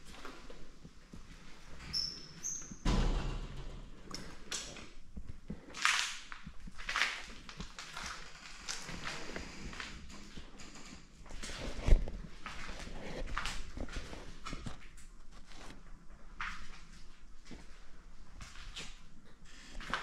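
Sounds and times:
short high squeaks: 1.8 - 2.8
heavy thud: 2.8 - 4.2.

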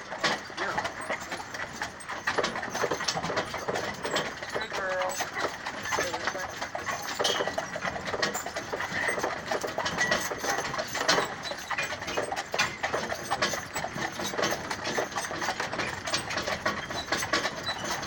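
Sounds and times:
carriage wheels and harness rattling: 0.0 - 18.0
hooves clicking on road: 0.0 - 18.0.

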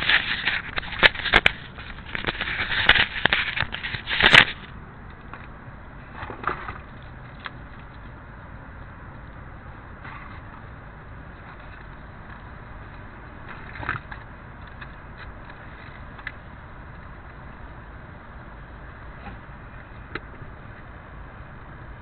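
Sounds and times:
camera handling rubbing and scraping: 0.0 - 4.8
steady low hiss: 0.0 - 22.0.

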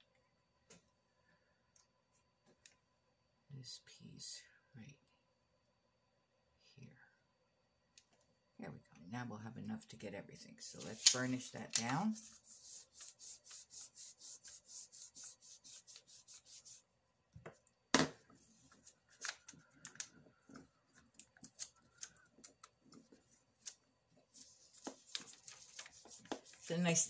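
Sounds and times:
tool rubbing over paper: 10.7 - 16.9, 24.2 - 27.0.

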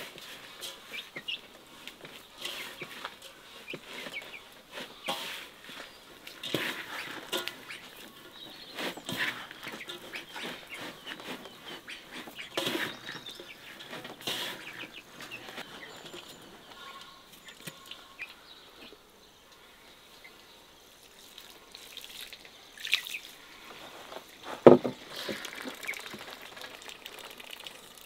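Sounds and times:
hands kneading wet dough: 0.0 - 15.9.

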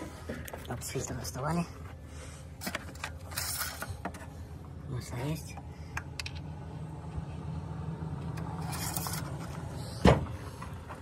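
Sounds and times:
low mechanical hum: 0.0 - 11.0.

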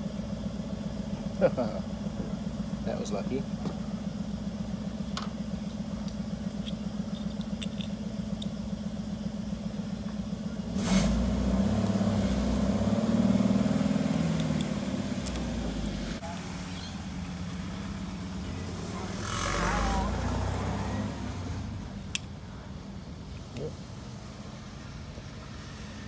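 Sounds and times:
deep vehicle engine: 0.0 - 26.0
vehicle engine idling: 0.0 - 26.0
clicks of metal parts: 5.2 - 8.5.

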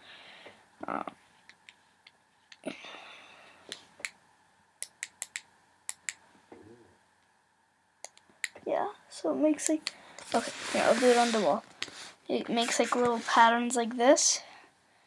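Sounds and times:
soft handling rustle: 10.2 - 13.6.

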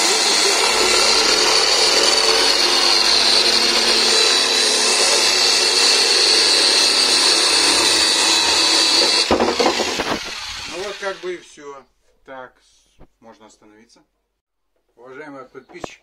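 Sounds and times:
jigsaw whining cutting plastic: 0.0 - 11.3.

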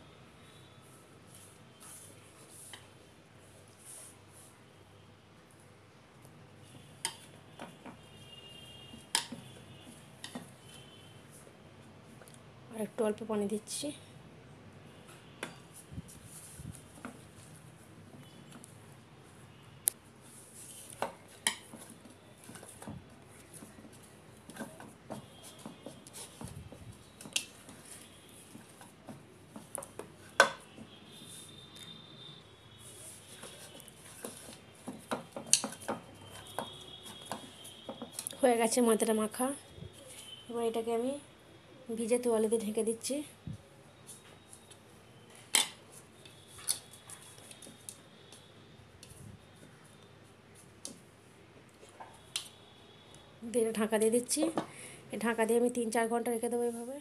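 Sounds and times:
dough squishing: 20.2 - 32.0.

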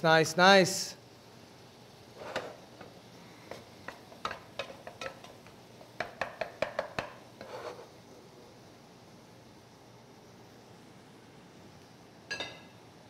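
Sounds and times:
stirring rustle: 2.1 - 8.1.

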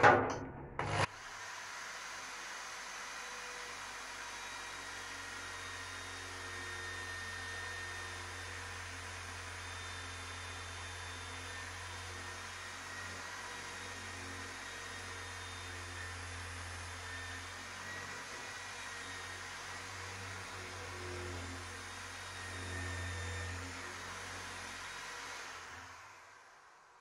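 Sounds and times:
electric drill grinding steel: 0.8 - 26.7.

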